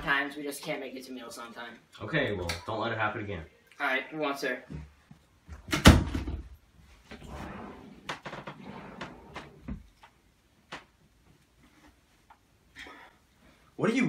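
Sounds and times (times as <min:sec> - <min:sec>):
clothes rustling: 0:06.8 - 0:12.6.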